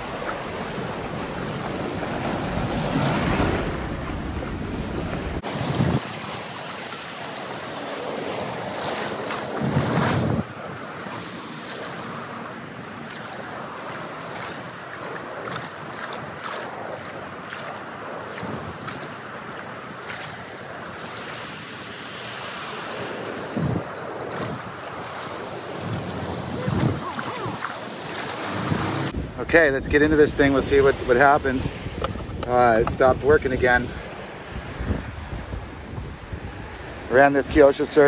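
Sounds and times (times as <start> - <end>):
wind buffeting microphone: 0.0 - 6.5, 8.0 - 12.2, 12.8 - 20.8, 23.3 - 38.0
small waves breaking on shore: 0.0 - 38.0.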